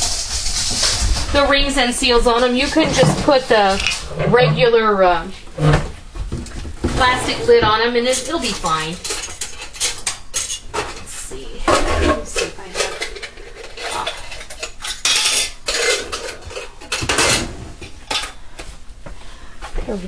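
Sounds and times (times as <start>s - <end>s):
kitchenware clattering: 1.4s - 6.0s, 6.9s - 18.4s.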